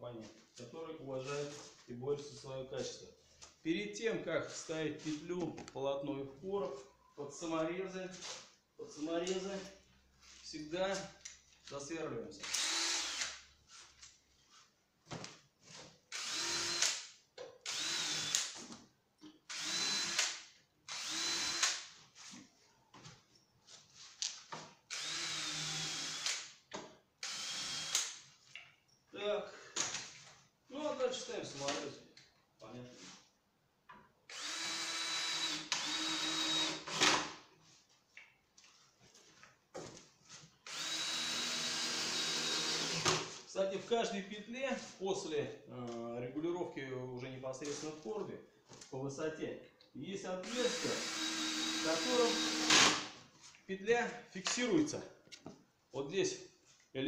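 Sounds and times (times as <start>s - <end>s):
cordless drill running: 12.4s - 13.3s, 16.1s - 16.9s, 17.6s - 18.5s, 19.5s - 20.3s, 20.9s - 21.8s, 24.9s - 26.4s, 27.2s - 28.0s, 34.3s - 37.2s, 40.6s - 43.1s, 50.4s - 53.0s.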